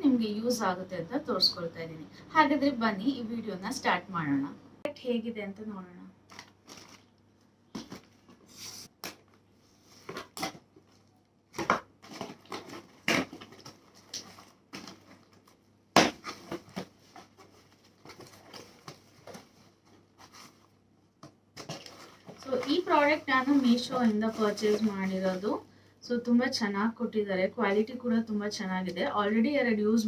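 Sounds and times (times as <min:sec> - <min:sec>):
plastic packaging crinkling: 0:06.3 - 0:09.4, 0:10.0 - 0:20.7, 0:21.6 - 0:25.6.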